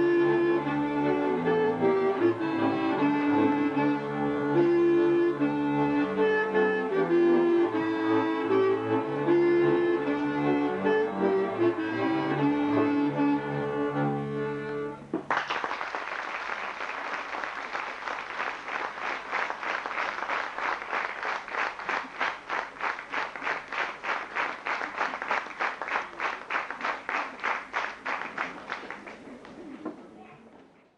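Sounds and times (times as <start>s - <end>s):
folk band with violin and bass: 0.0s - 15.3s
audience clapping in unison: 15.2s - 29.8s.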